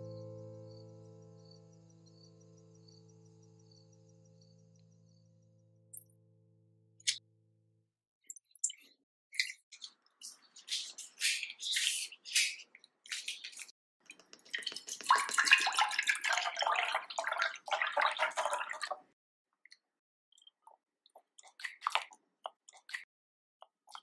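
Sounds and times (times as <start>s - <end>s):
spoon scraping: 9.4s - 13.7s
liquid pouring into saucepan: 14.5s - 19.1s.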